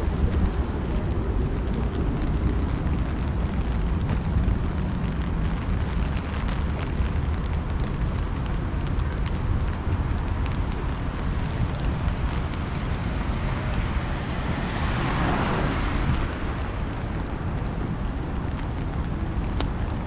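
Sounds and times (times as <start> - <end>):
rain hissing: 0.0 - 20.0
wind buffeting microphone: 0.0 - 20.0
faint light ticks: 18.4 - 19.9.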